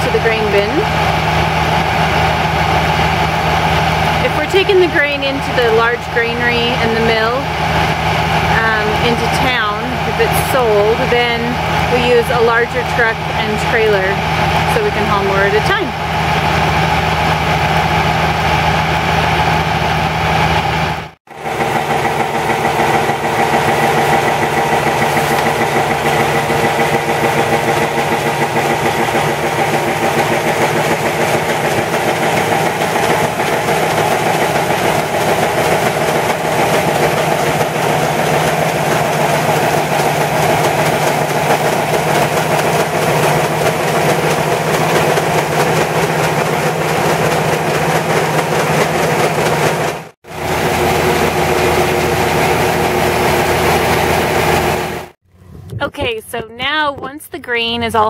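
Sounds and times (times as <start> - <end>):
grain auger running: 0.0 - 56.2
tractor engine running: 0.0 - 58.0
wheat pouring: 21.4 - 53.8.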